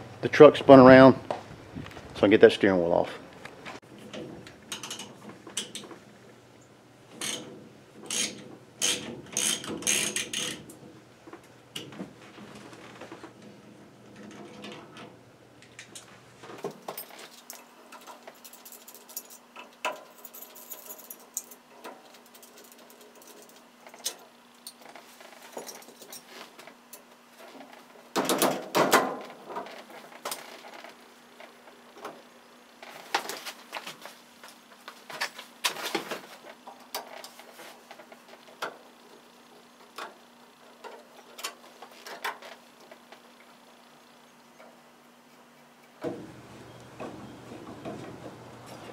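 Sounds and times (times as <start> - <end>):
hand tools clicking and clinking: 16.7 - 27.0.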